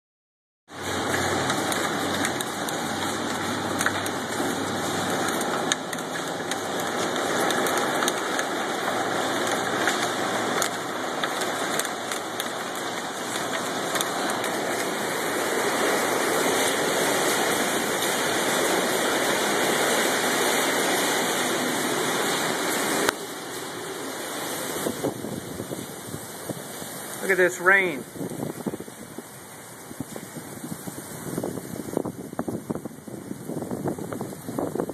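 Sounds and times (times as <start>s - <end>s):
hailstones ticking on glass: 0.7s - 25.1s
heavy rain on window: 0.7s - 34.9s.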